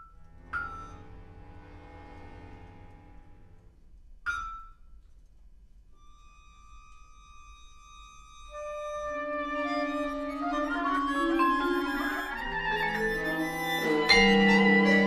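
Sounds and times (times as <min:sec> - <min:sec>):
chamber ensemble playing: 0:08.6 - 0:15.0.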